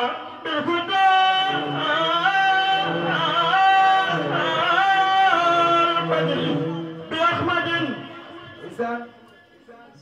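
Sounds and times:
man singing into a microphone: 0.0 - 8.8.

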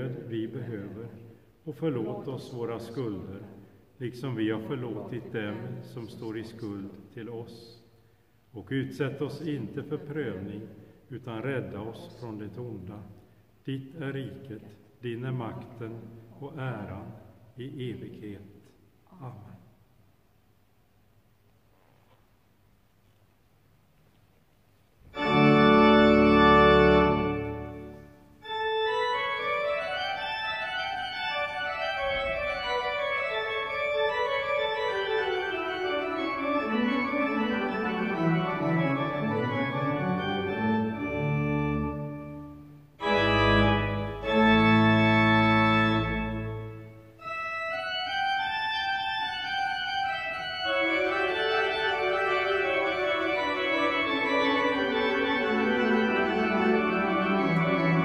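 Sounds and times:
church organ playing: 25.0 - 58.0.

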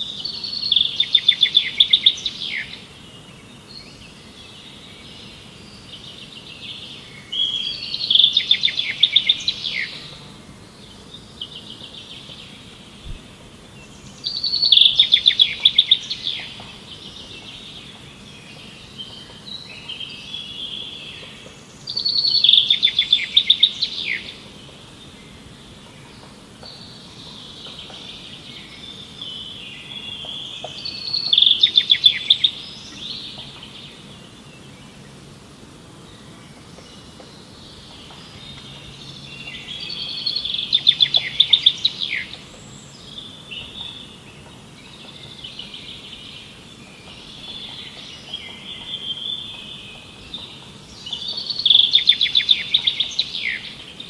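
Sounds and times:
bird chirps and twittering: 0.0 - 35.1, 36.2 - 54.0
faint background hiss: 0.0 - 54.0
songbird trilling: 0.2 - 2.8, 7.2 - 10.2, 14.2 - 17.6, 21.9 - 24.4, 28.6 - 33.8, 37.7 - 44.1, 45.2 - 54.0.

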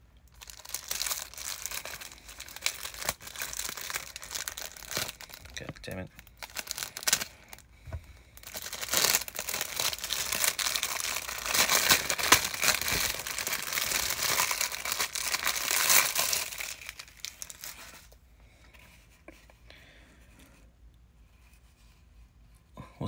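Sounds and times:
plastic bag crinkling: 0.3 - 18.2.

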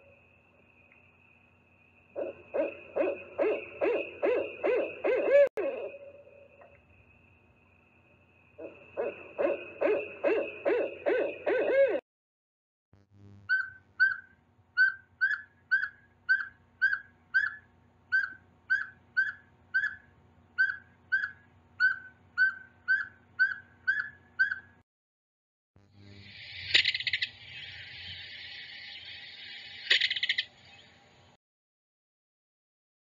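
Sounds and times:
owl high toots: 2.2 - 6.5, 8.6 - 12.0, 13.5 - 24.7
owl low hoots: 2.2 - 6.5, 8.6 - 12.0.

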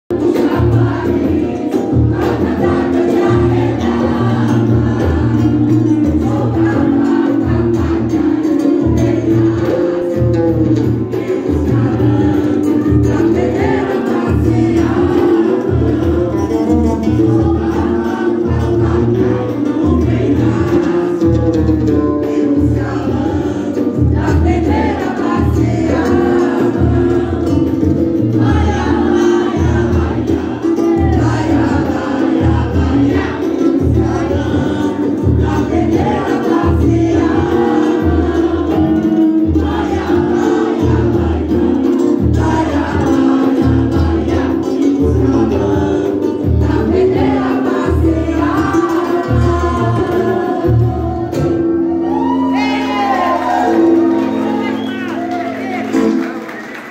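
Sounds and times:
low percussion beat: 0.1 - 54.5
women singing samba: 0.1 - 56.9.

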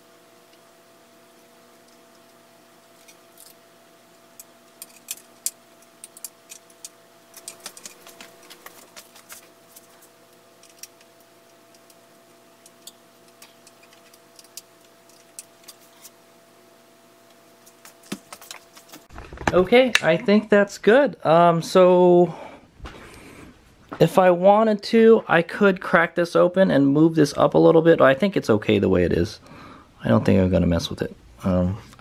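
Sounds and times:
faint steady hum: 0.0 - 32.0
small parts clicking and tapping: 4.4 - 12.0, 12.6 - 16.1.

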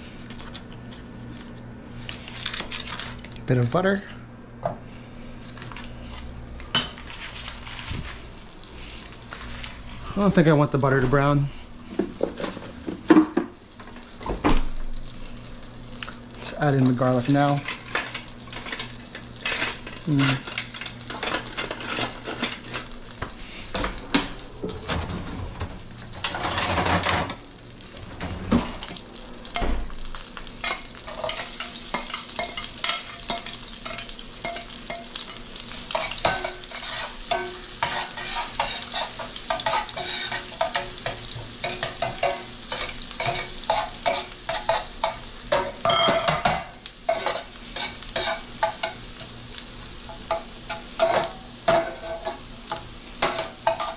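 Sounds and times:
garlic sizzling in oil: 6.4 - 24.7, 28.7 - 53.9
metal tongs scraping a pot: 30.6 - 46.3, 47.1 - 49.0.

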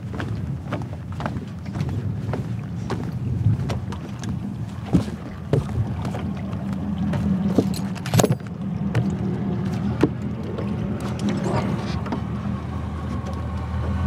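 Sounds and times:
footsteps on carpeted deck: 0.0 - 8.0
low engine hum: 0.0 - 14.0.

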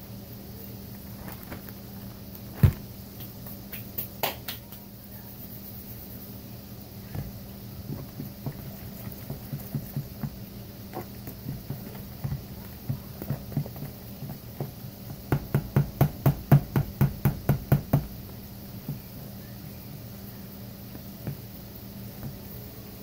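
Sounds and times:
fork beating batter in bowl: 7.0 - 18.1.

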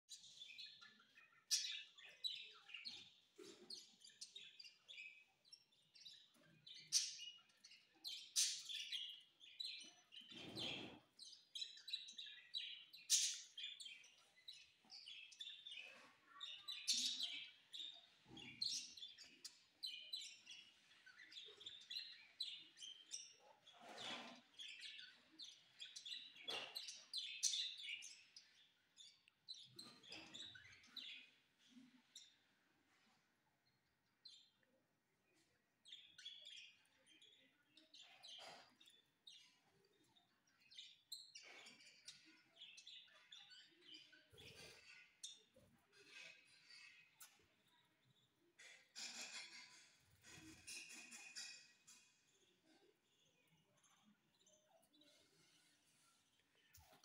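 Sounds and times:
budgerigars chattering and chirping: 0.1 - 32.4, 40.7 - 47.6, 48.5 - 52.9.

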